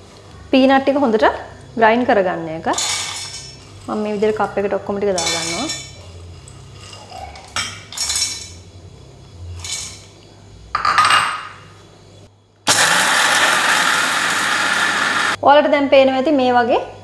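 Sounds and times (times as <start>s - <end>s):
electric mixer grinder running: 12.7s - 15.4s.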